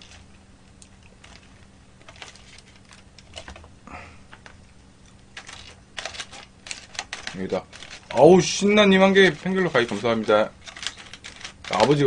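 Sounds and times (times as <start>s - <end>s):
aluminium foil crinkling: 0.0s - 3.7s, 5.0s - 12.0s
plastic spoon scraping: 5.4s - 12.0s.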